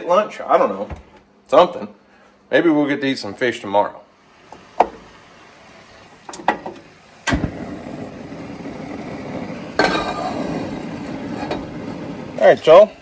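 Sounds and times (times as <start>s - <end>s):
gas flame burning: 4.2s - 12.7s
igniter clicking: 6.2s - 7.6s
metal pot clanking on grate: 9.6s - 12.3s.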